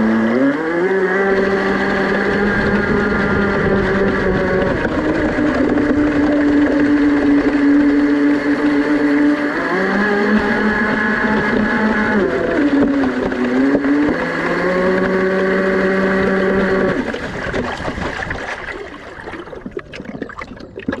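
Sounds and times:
model boat motor whining: 0:00.0 - 0:19.7
water splashing against hull: 0:01.0 - 0:21.0
rushing water: 0:12.5 - 0:21.0.

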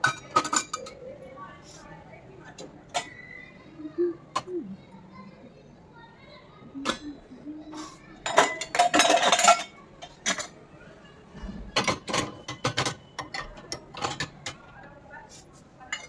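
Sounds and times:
steel bowls and cups clattering: 0:00.0 - 0:01.0, 0:07.8 - 0:10.6, 0:11.8 - 0:14.7.

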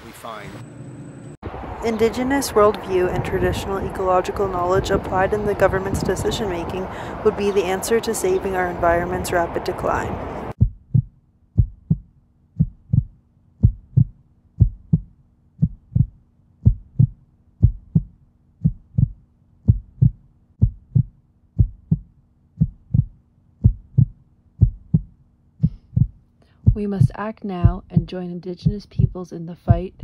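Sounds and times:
heartbeat thumps: 0:10.5 - 0:30.0.

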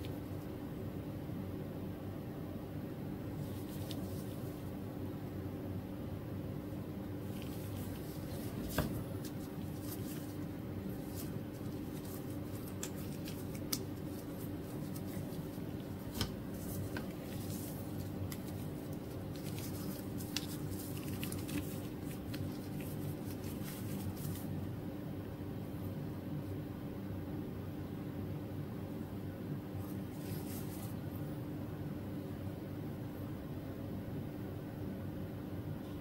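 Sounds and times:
steady low hum: 0:00.0 - 0:36.0
gloved hands rustling straps: 0:03.3 - 0:04.7, 0:07.2 - 0:24.6, 0:29.9 - 0:31.0.

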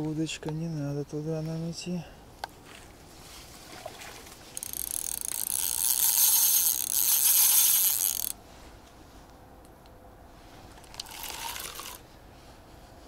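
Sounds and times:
fishing reel ratcheting: 0:04.5 - 0:08.4, 0:10.8 - 0:12.0.

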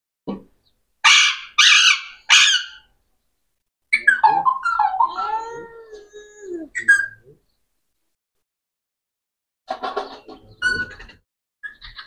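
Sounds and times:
parakeet squawks: 0:01.0 - 0:02.9
parakeet warbling chatter: 0:01.1 - 0:02.8.

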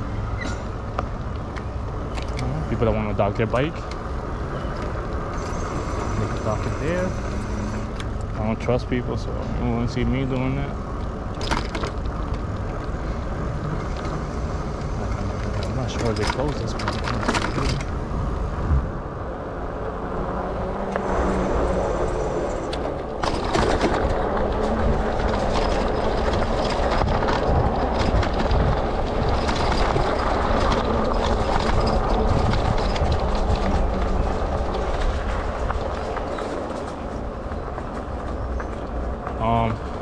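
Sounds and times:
bike rattling: 0:00.0 - 0:18.7, 0:19.4 - 0:40.0
bike tyres rumbling on ground: 0:19.7 - 0:40.0.

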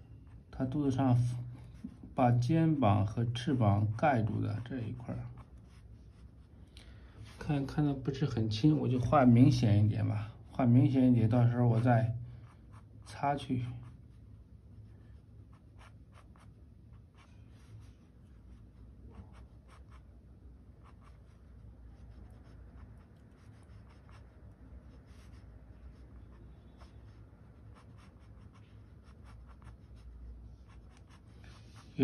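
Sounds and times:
pencil scratching on paper: 0:03.4 - 0:06.5, 0:11.5 - 0:32.0.

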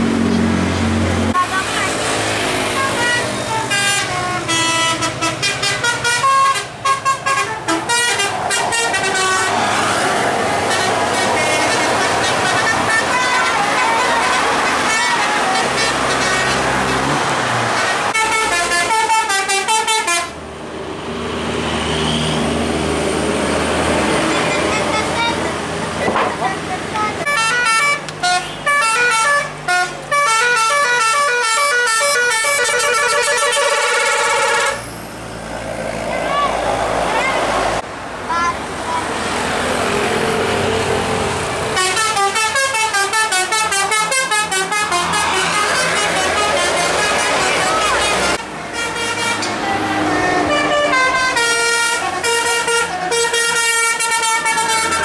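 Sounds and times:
bus horn playing a melody: 0:01.3 - 0:01.9, 0:02.5 - 0:20.4, 0:24.2 - 0:25.7, 0:26.9 - 0:34.8, 0:41.7 - 0:55.0.

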